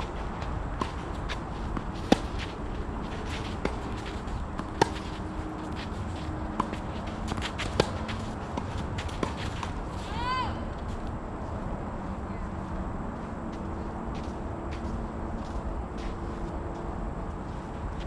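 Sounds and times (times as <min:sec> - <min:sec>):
outdoor background noise: 0:00.0 - 0:18.0
ball bounces or footsteps: 0:00.4 - 0:09.8
tennis racket hitting ball: 0:00.4 - 0:09.8.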